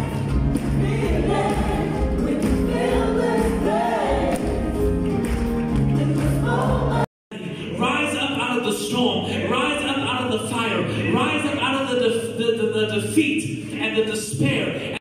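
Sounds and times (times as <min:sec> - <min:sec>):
band with keyboard: 0:00.0 - 0:07.0
gospel singers: 0:00.0 - 0:07.8.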